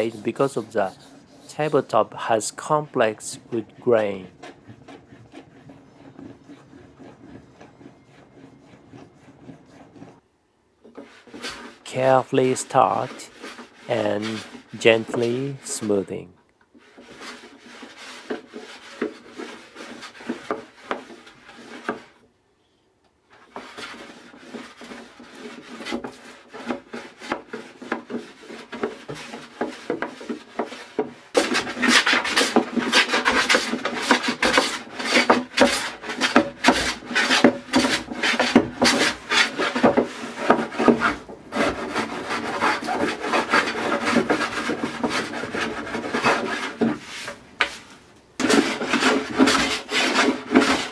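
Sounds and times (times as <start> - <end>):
hand plane shaving wood: 0.0 - 10.2, 10.8 - 16.0, 16.7 - 22.2, 23.3 - 50.9.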